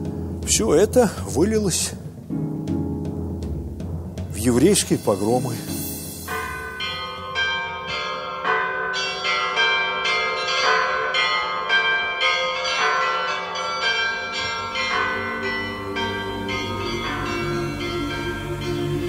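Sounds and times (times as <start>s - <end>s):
church bells ringing: 4.4s - 19.0s.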